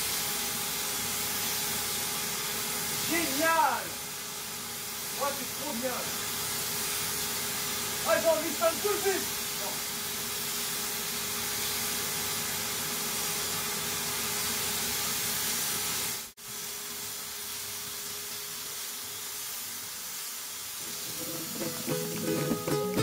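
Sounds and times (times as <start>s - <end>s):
spray gun hissing: 0.0s - 22.9s
paint sprayer turbine blowing air: 20.8s - 22.9s.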